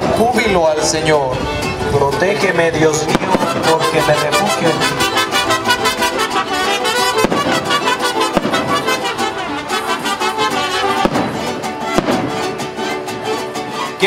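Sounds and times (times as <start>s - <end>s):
music playing: 0.0s - 14.0s
sharp bangs: 2.8s - 12.8s.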